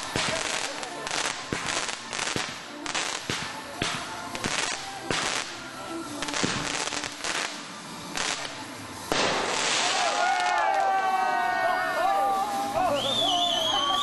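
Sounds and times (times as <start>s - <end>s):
fireworks aerial bursts: 0.0s - 14.0s
fireworks crackle: 0.0s - 14.0s
fireworks launch thumps: 9.1s - 10.2s.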